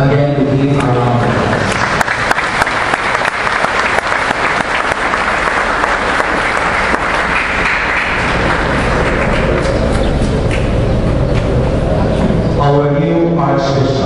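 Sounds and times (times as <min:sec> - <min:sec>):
congregation applauding: 0:01.0 - 0:10.8.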